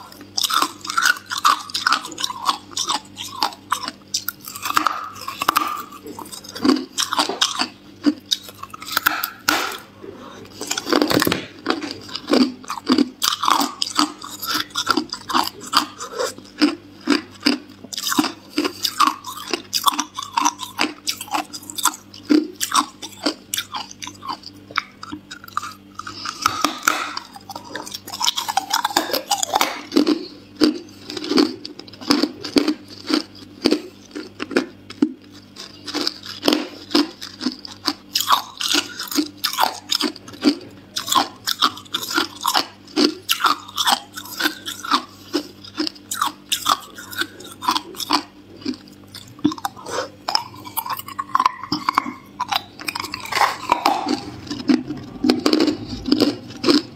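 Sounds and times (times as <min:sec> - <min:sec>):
person crunching ice: 0:00.4 - 0:09.8, 0:25.0 - 0:56.9.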